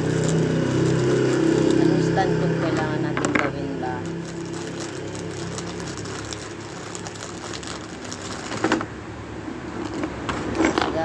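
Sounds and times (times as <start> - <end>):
plastic packaging crinkling: 0.0 - 2.9, 3.8 - 8.9.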